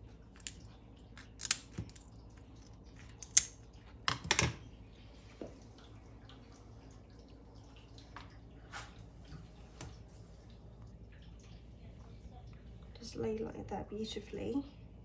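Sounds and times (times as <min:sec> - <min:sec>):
scissors crunching crisp pork skin: 0:01.2 - 0:02.1.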